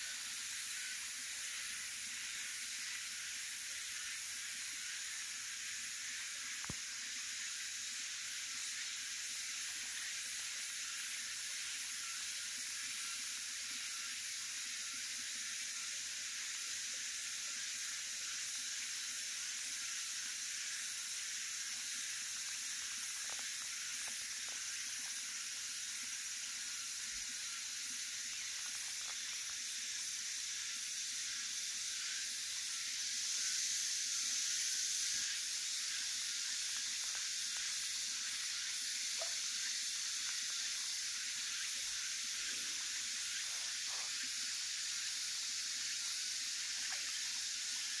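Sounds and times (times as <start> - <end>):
high-pitched outdoor hiss: 0.0 - 48.0.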